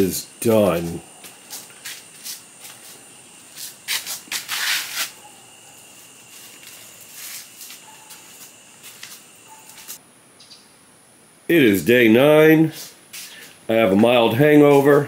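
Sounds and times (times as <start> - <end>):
rubbing hiss: 0.0 - 10.0, 12.2 - 15.0
faint high-pitched whine: 0.0 - 15.0
soft rustling and scuffing: 1.2 - 5.4, 6.0 - 10.0, 12.7 - 15.0.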